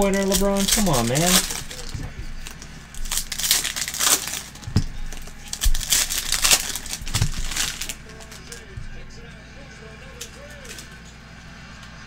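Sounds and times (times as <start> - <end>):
foil wrapper crinkling and tearing: 0.0 - 8.7.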